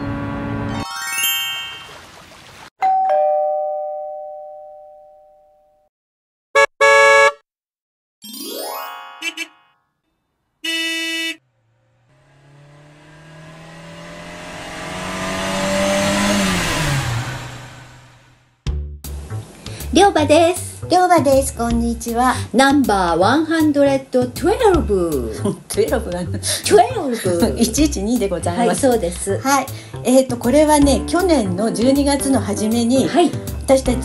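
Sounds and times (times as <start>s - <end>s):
two-note chime: 0.7s - 2.0s.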